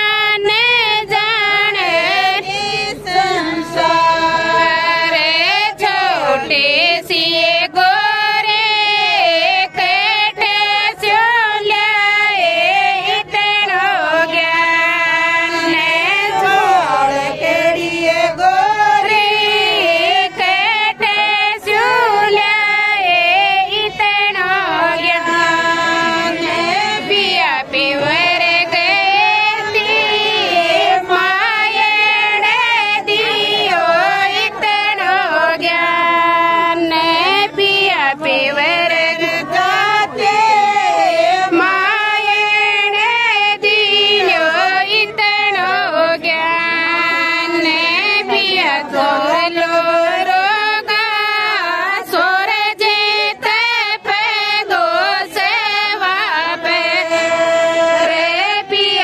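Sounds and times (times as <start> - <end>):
woman singing folk song: 30.4 - 59.0.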